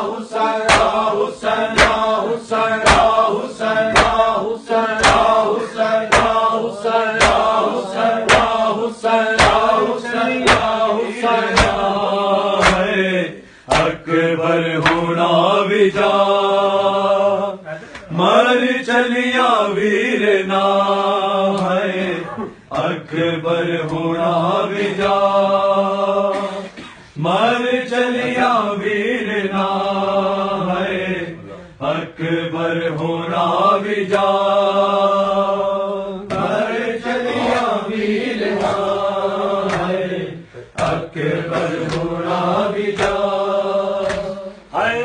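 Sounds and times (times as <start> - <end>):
men chanting a lament: 0.0 - 45.0
hands slapping chests: 0.7 - 2.2, 2.8 - 6.6, 7.2 - 8.7, 9.4 - 10.8, 11.4 - 12.0, 12.6 - 13.0, 13.7 - 14.0, 14.8 - 15.1, 22.7 - 23.0, 36.2 - 36.7, 38.4 - 39.0, 39.6 - 40.0, 40.7 - 43.4, 44.0 - 44.4.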